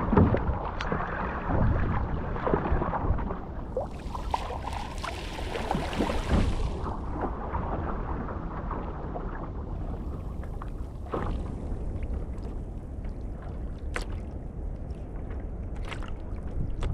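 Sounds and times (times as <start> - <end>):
low steady rumble: 0.0 - 16.9
water splashing along hull: 0.0 - 16.9.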